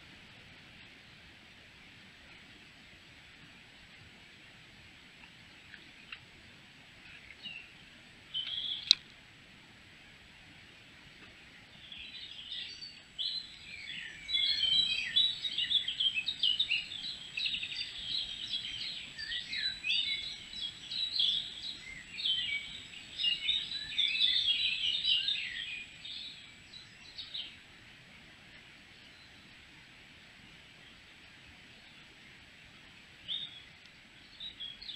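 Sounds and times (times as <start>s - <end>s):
songbird warbling: 8.4s - 9.0s, 11.8s - 27.4s.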